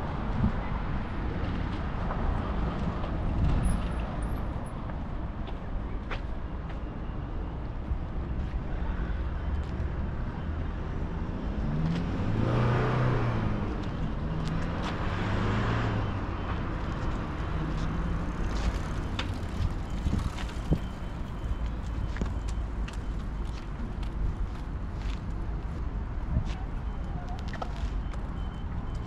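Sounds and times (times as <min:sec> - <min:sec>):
motor vehicles driving past: 0:10.6 - 0:20.9.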